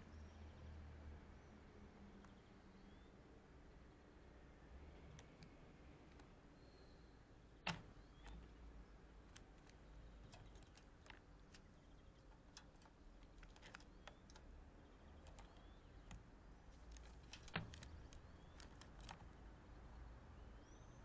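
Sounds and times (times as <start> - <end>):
bird beak tapping plastic feeder: 9.2 - 16.2, 16.8 - 19.3.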